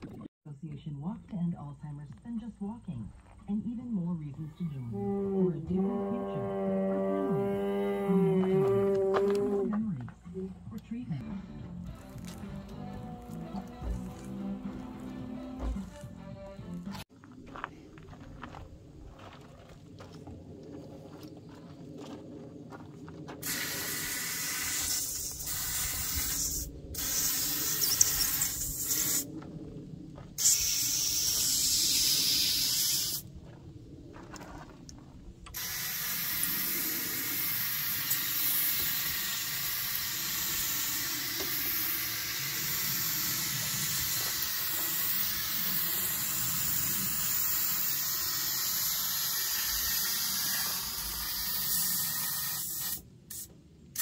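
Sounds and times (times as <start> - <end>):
compressed air hissing: 23.4 - 29.4, 30.4 - 33.3, 35.5 - 54.0.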